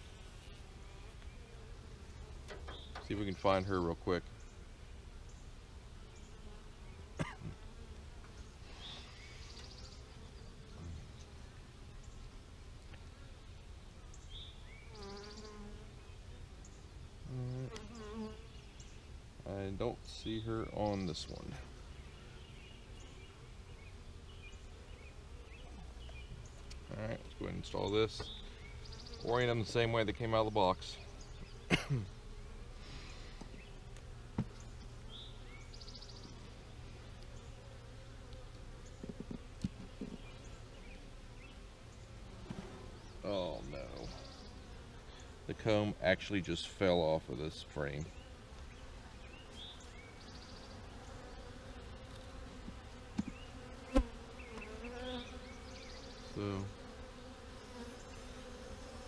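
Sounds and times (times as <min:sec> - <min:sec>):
honeybees buzzing: 0:00.0 - 0:59.0
bee flying past microphone: 0:48.1 - 0:59.0.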